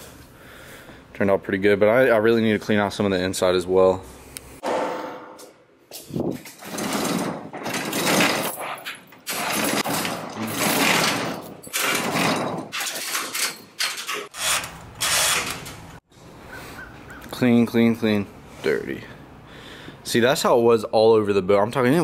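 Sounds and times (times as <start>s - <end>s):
metal garage door clattering up: 6.3s - 15.9s
chain rattling: 6.4s - 14.3s.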